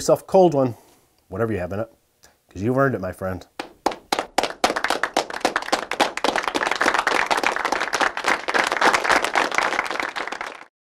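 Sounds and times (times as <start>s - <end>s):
group of people clapping: 3.6s - 10.7s.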